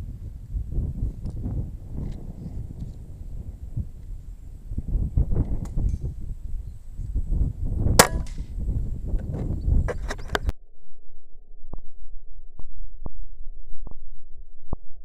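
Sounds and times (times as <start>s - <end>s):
rough low rumble: 0.0s - 15.0s
sharp metallic clang: 8.0s - 8.5s.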